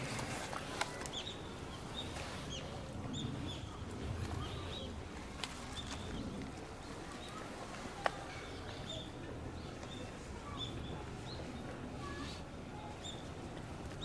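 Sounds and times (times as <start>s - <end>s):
small birds chirping: 0.6s - 14.0s.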